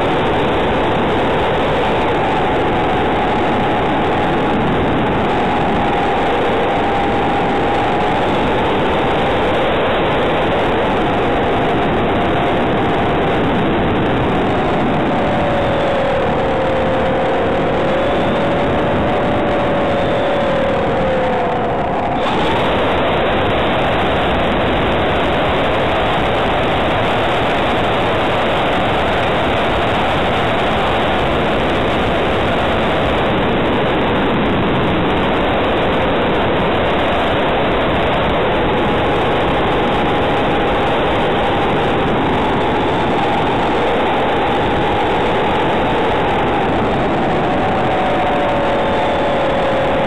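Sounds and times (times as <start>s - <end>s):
faint electric motor whine: 0.0s - 50.0s
wind rushing over camera: 0.0s - 50.0s.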